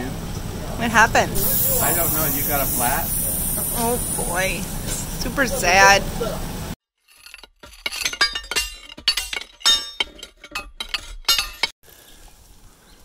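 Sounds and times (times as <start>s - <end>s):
faint outdoor hiss: 0.0s - 6.7s.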